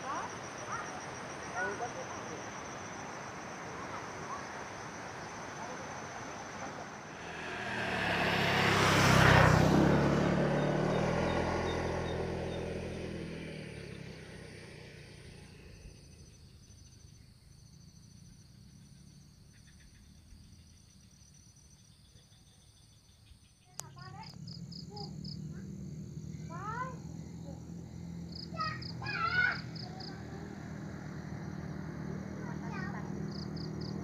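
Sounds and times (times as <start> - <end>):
insects chirping: 0.0 - 34.0
vehicle passing by: 6.8 - 16.0, 25.1 - 34.0.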